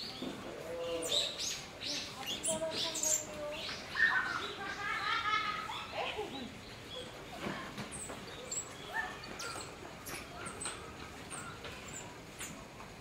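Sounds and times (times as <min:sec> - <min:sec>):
monkeys chirping and squeaking: 0:07.9 - 0:12.6.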